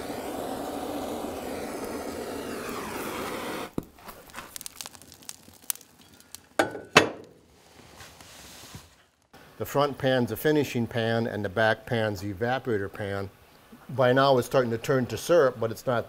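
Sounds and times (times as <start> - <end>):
propane torch hissing: 0.0 - 6.8
fire crackling and popping: 0.0 - 9.4.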